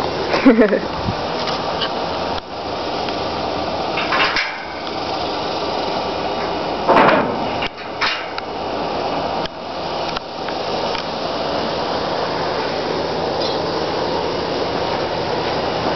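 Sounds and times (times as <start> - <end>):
engine idling: 0.0 - 15.9.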